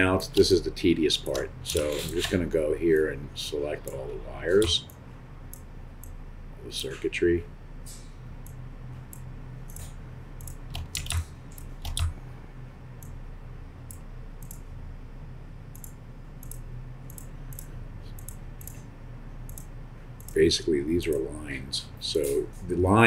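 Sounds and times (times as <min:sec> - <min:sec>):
steady low hum: 0:00.0 - 0:23.0
computer mouse clicking: 0:04.6 - 0:06.2, 0:08.4 - 0:12.1, 0:13.8 - 0:14.6, 0:15.7 - 0:18.9, 0:19.5 - 0:20.4.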